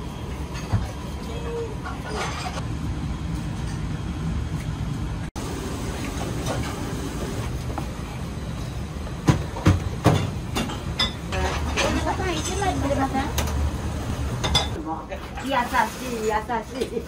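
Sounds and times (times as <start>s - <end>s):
low rumble of kitchen machinery: 0.0s - 17.0s
kitchen utensils clattering: 1.9s - 2.6s, 9.6s - 13.4s, 14.3s - 17.0s.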